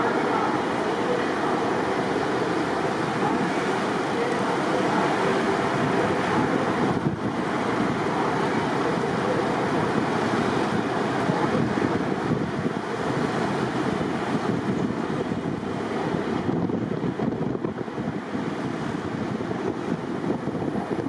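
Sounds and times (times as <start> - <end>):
car road noise and wind: 0.0 - 21.0.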